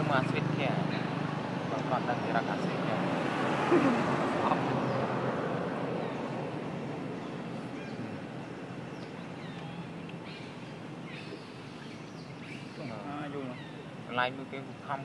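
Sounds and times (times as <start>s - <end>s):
passing vehicle engine: 0.0s - 10.1s
road noise: 0.0s - 15.0s.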